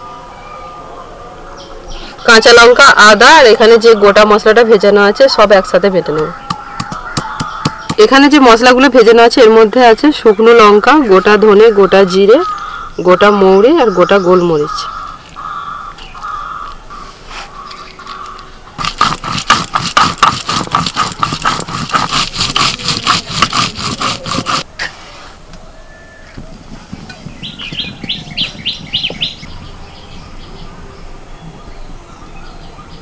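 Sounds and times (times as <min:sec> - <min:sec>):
stone roller grinding paste: 0:18.8 - 0:24.7.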